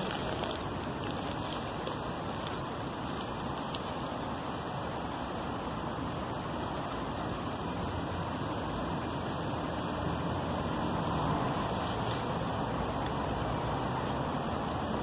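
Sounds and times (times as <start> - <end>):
steady rushing background noise: 0.0 - 15.0.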